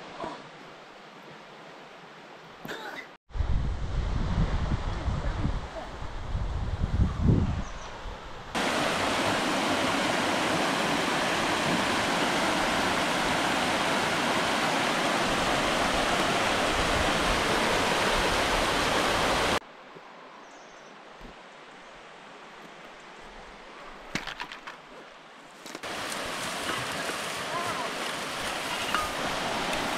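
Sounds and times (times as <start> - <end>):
faint outdoor background: 0.0 - 8.6
waterfall rushing: 8.6 - 19.6, 25.8 - 29.9.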